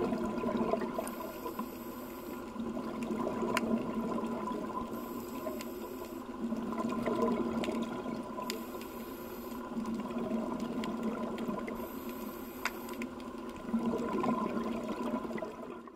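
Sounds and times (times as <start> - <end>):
exhaust bubbles gurgling: 0.0 - 1.6, 2.3 - 8.6, 9.6 - 12.3, 13.1 - 15.9
regulator inhale hiss: 1.0 - 2.5, 4.9 - 6.3, 8.4 - 9.7, 11.7 - 13.0.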